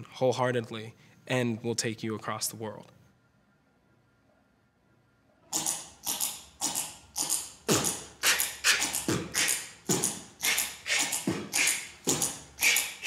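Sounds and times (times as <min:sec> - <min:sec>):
beatboxing: 0:06.6 - 0:13.0.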